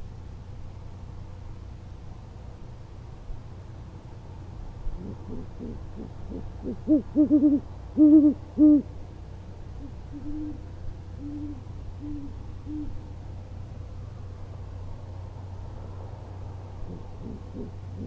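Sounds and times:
fainter owl hoots answering: 5.0 - 8.9, 9.8 - 10.6, 11.2 - 13.0, 16.8 - 18.0
loud owl hoots: 5.0 - 8.9, 9.8 - 13.1, 16.8 - 18.0.

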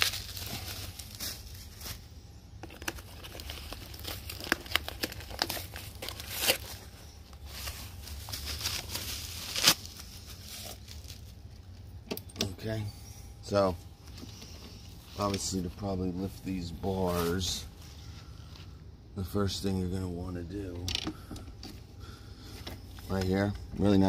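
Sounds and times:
plastic packaging crinkling and tearing: 0.0 - 11.9.

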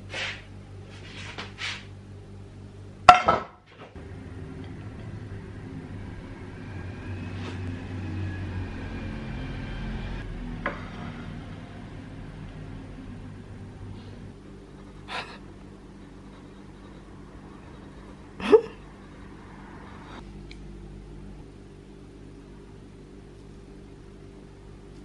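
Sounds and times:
low room hum: 0.0 - 25.0
light scrapes: 0.1 - 1.9.

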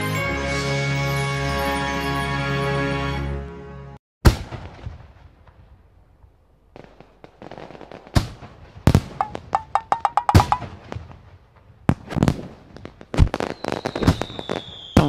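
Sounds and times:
background music: 0.0 - 4.0
fireworks bangs and crackles: 4.2 - 6.0, 6.6 - 15.0.

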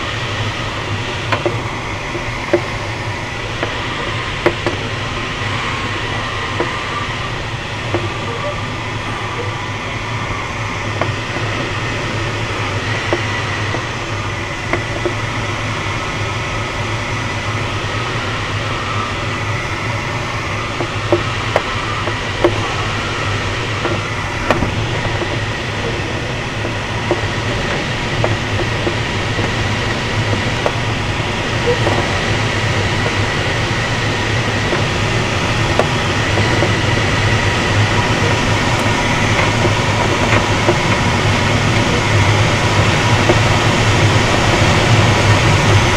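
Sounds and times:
faint high tone: 8.1 - 8.7.

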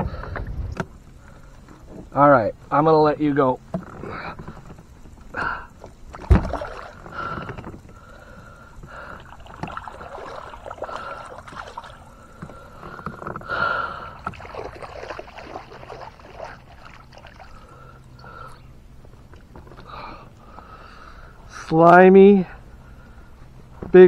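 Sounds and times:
water sloshing around kayak: 3.6 - 21.3.

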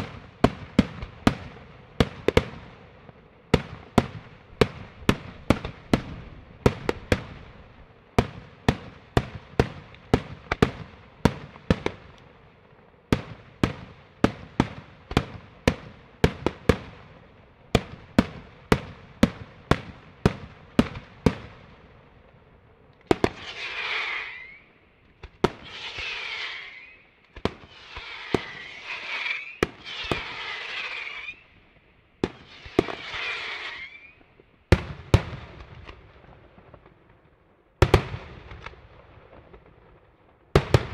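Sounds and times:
hissing crackling firework bursts: 23.1 - 34.4.

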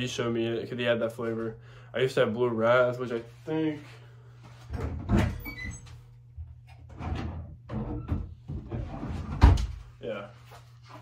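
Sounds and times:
wardrobe doors knocking and thumping: 6.9 - 9.8.

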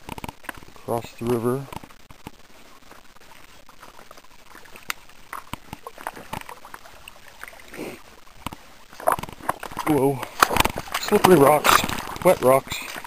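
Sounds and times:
footsteps on wet rocks and gravel: 0.0 - 13.0
shallow water trickling: 0.0 - 13.0.

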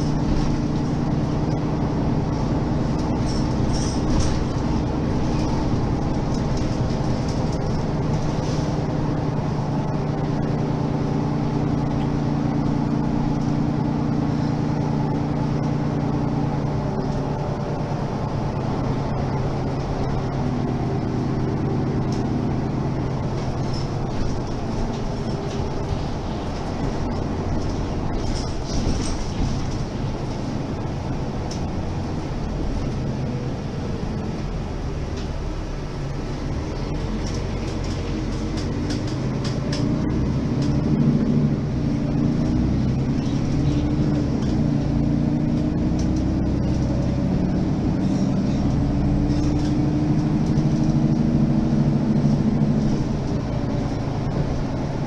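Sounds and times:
bus engine idling: 0.0 - 55.0.

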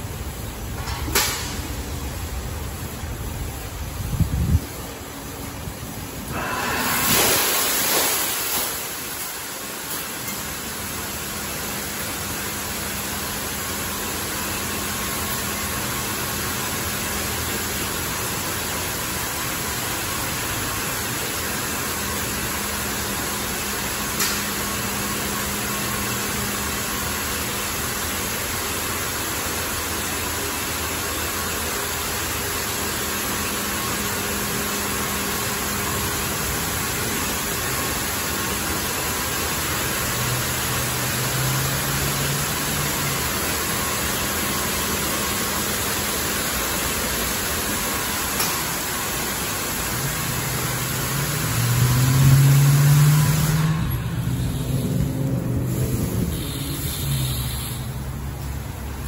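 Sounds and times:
water jets spraying car: 0.0 - 59.0.

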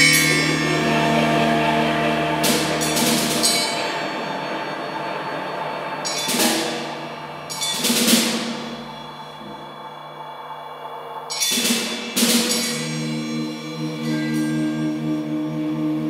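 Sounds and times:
electric guitar drone: 0.0 - 7.5, 12.8 - 16.0.

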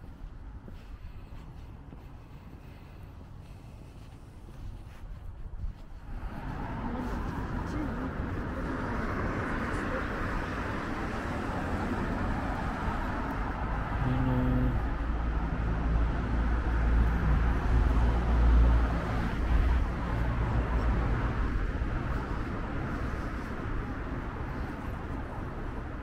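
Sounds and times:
engine hum: 0.0 - 26.0
traffic rumble: 0.0 - 26.0.

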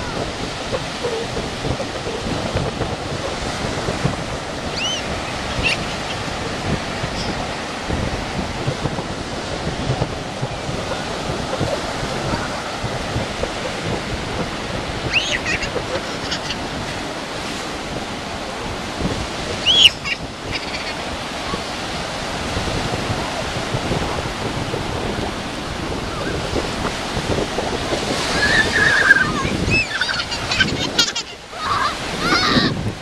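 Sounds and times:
ocean surf breaking: 0.0 - 33.0
children shrieking: 15.1 - 16.6, 28.2 - 32.8.

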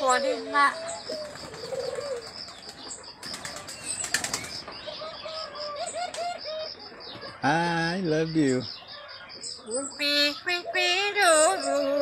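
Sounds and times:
bird soft calls: 0.0 - 12.0
wing beats fluttering: 1.0 - 4.8.

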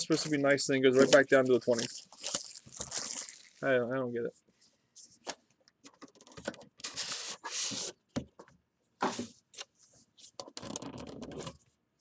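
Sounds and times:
box packaging rustling: 0.1 - 3.6.

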